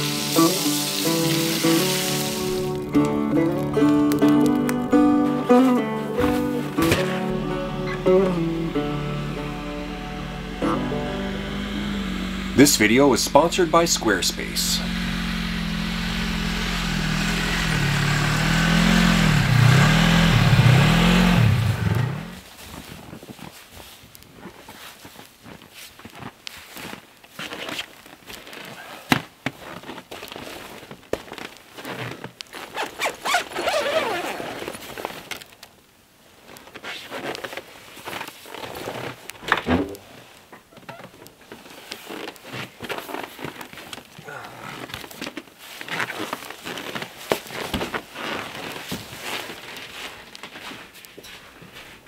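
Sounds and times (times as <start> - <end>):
canvas flap rustling: 0.0 - 7.4, 22.4 - 52.0
footsteps on snow: 0.0 - 33.2, 45.5 - 52.0
knocks and thuds: 39.5 - 40.0.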